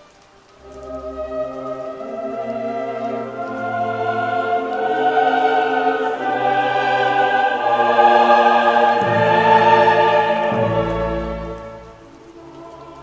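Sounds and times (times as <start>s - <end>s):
choir singing sustained chords: 0.0s - 13.0s.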